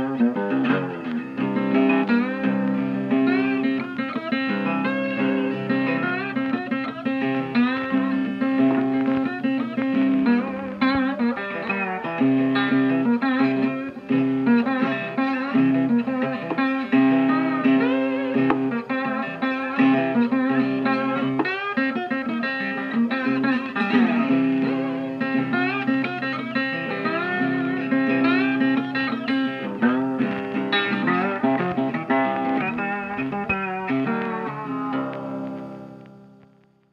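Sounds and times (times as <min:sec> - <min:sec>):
plucked guitar music: 0:00.0 - 0:36.9.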